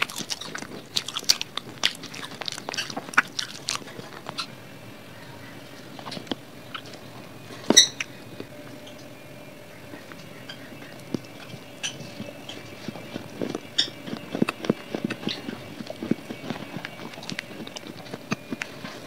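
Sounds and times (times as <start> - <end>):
chewing hard clay crunches: 0.0 - 4.5, 10.1 - 19.0.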